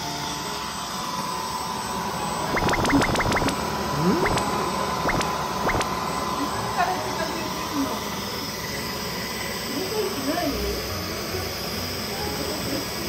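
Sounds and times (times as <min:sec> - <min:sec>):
sharp clicks: 0:02.5 - 0:03.6, 0:04.2 - 0:05.9.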